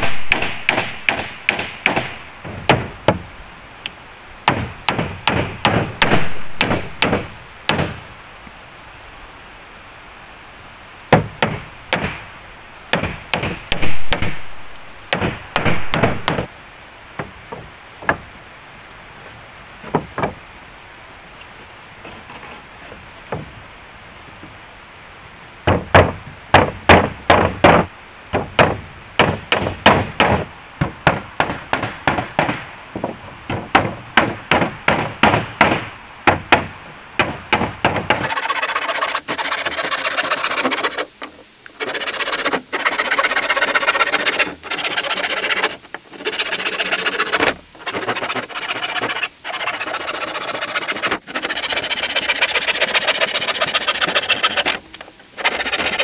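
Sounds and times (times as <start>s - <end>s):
wood being struck: 0.0s - 3.3s, 4.4s - 8.0s, 11.1s - 12.3s, 12.9s - 16.5s, 17.2s - 18.3s, 19.8s - 20.4s, 25.7s - 56.0s
wood being sawn: 38.1s - 56.0s.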